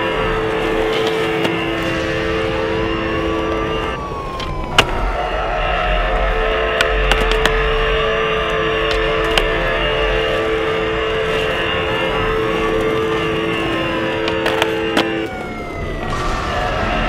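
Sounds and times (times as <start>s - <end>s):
droning music: 0.0s - 17.0s.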